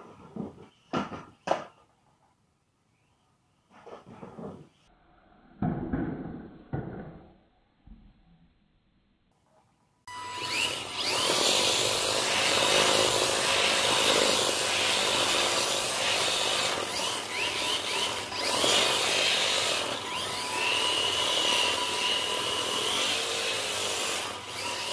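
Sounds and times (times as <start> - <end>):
electric motor whining: 10.1 - 24.9.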